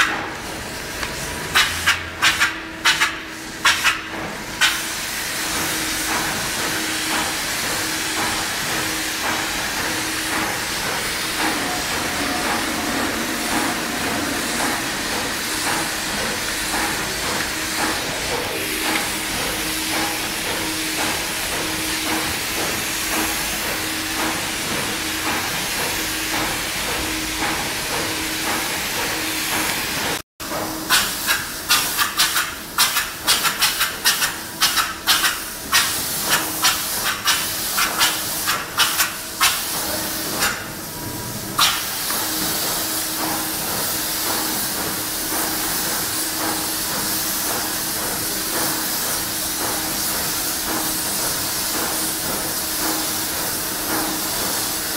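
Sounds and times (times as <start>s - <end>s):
spray gun hissing: 4.6s - 30.0s.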